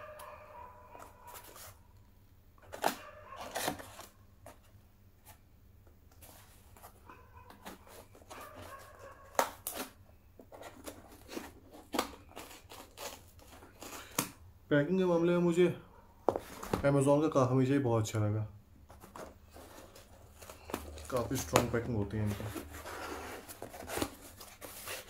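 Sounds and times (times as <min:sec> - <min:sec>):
packaging ripping and crinkling: 0:10.6 - 0:14.4, 0:19.5 - 0:25.0.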